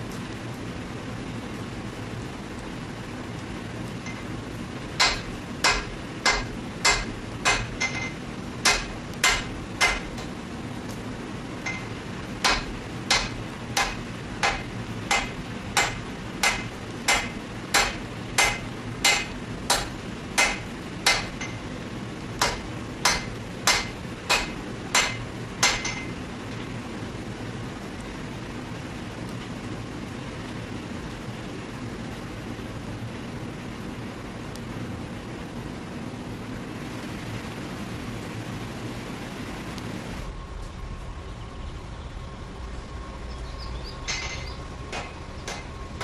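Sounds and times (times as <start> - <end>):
hammer striking steel on anvil: 5.0 - 10.3, 11.6 - 21.6, 22.4 - 26.1, 44.0 - 45.7
low rumble: 40.2 - 46.0.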